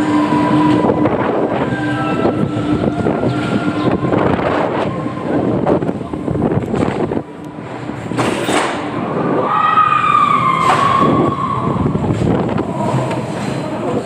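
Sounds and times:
long high falling tone: 0.0 - 6.7
roller coaster rumbling on track: 0.0 - 14.0.

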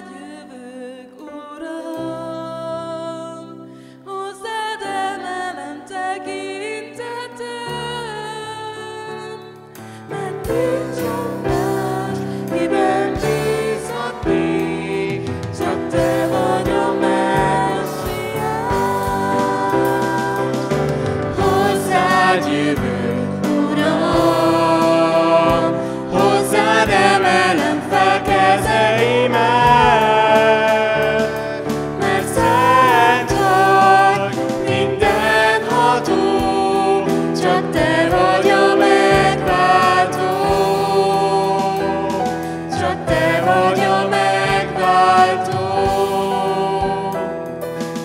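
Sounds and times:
keyboard: 0.0 - 48.0
people singing into microphones: 0.0 - 48.0
drums: 9.8 - 48.0.

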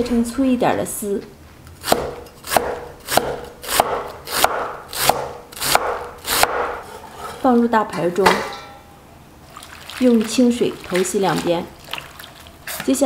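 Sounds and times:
cleaver slicing cabbage: 1.8 - 6.9.

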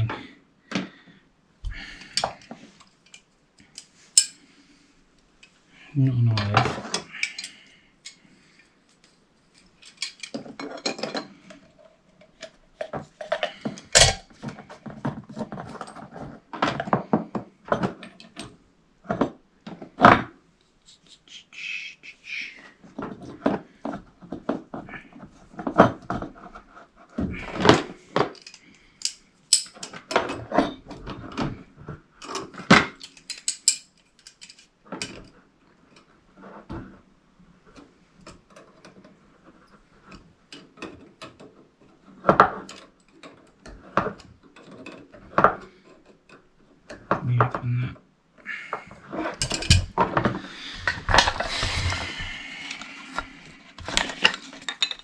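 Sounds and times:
metal tools clinking: 3.0 - 4.4, 9.5 - 11.5, 28.2 - 30.0, 33.0 - 35.2, 53.9 - 55.0.

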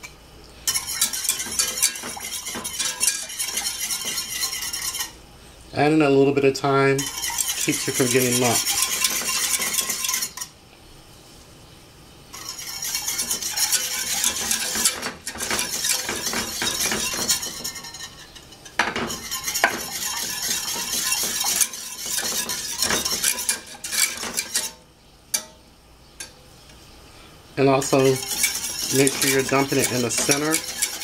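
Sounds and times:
whisk scraping and clinking in pan: 0.6 - 5.2, 6.9 - 10.6, 12.3 - 25.6, 27.8 - 31.0.

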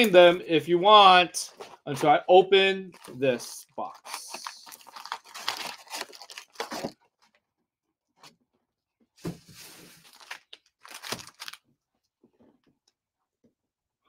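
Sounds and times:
foil packs crinkling: 4.0 - 7.0, 9.6 - 11.6
cardboard box rustling: 4.7 - 7.0.

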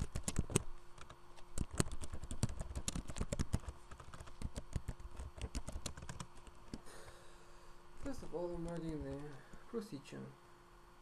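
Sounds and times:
typing on computer keyboard: 0.0 - 6.8.

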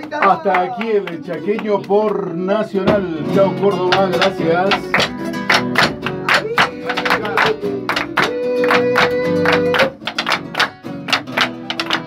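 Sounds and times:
acoustic guitars strummed: 2.6 - 12.0
person singing: 3.1 - 5.4, 6.0 - 10.3.

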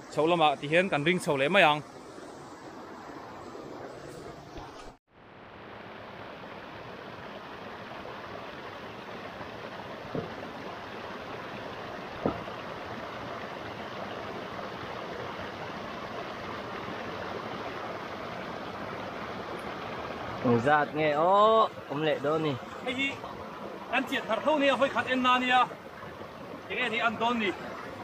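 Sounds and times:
shallow stream flowing over rocks: 4.4 - 28.0
stones knocking in water: 10.1 - 10.4, 12.2 - 12.6.

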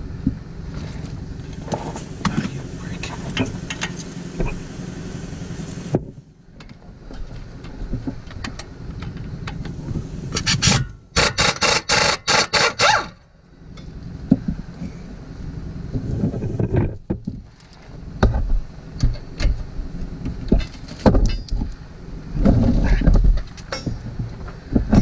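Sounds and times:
pneumatic air ratchet bursts: 10.3 - 13.2.

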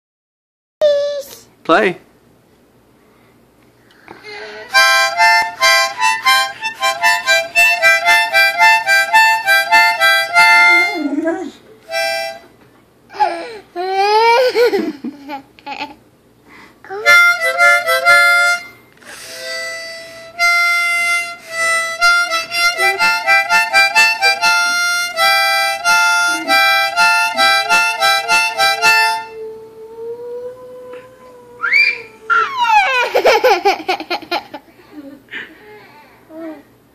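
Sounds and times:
harmonica chords: 4.2 - 12.6, 16.9 - 29.5
dog howling: 29.2 - 33.1.

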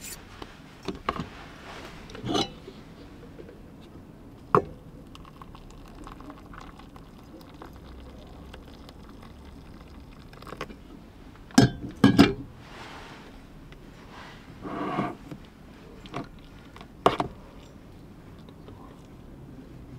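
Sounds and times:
kettle clanking on metal stove: 2.2 - 2.6, 11.5 - 12.4
hot water pouring onto oats: 5.1 - 10.7.

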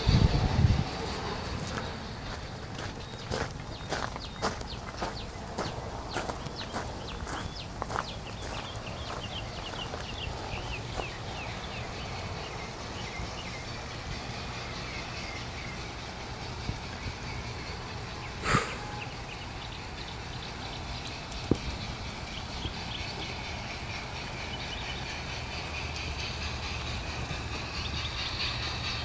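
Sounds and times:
birds chirping: 0.0 - 29.0.

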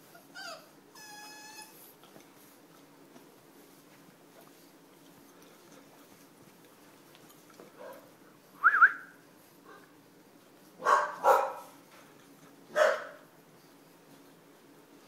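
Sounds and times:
puppy squealing: 0.1 - 1.8
puppies barking: 10.8 - 11.7, 12.7 - 13.2.

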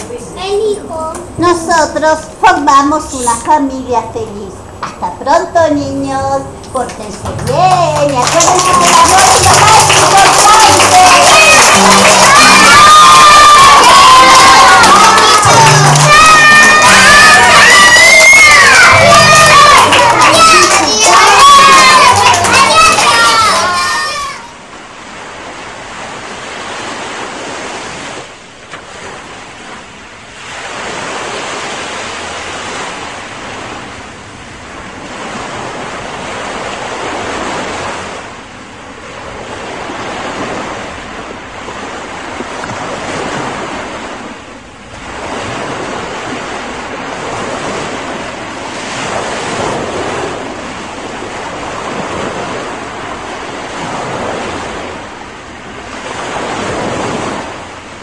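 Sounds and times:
ocean waves washing in: 0.0 - 58.0.

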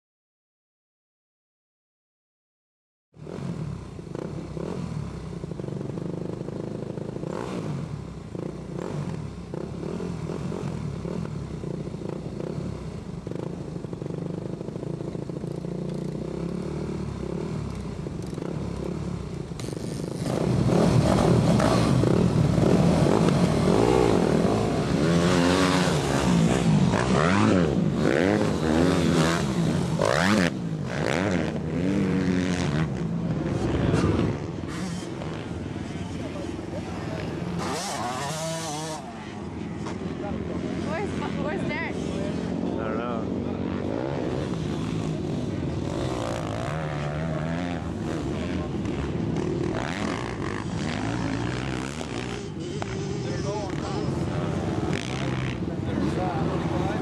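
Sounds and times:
dirt bike engines revving: 3.2 - 57.0.

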